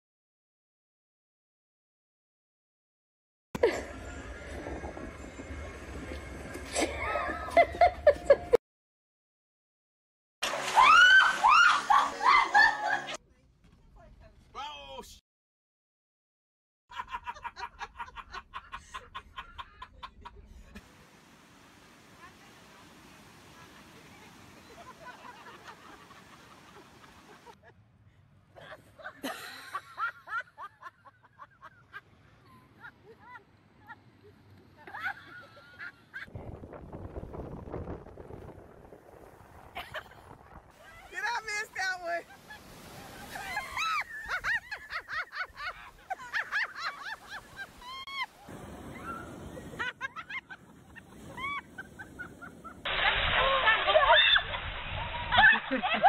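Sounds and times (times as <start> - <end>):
wind: 3.6 - 8.6, 10.4 - 15.2, 16.9 - 56.0
surf: 10.4 - 13.2, 20.7 - 27.6, 36.2 - 56.0
high-pitched cackling laughter: 11.0 - 13.2, 17.0 - 20.4, 49.8 - 56.0
person laughing in squeaky bursts: 53.0 - 56.0.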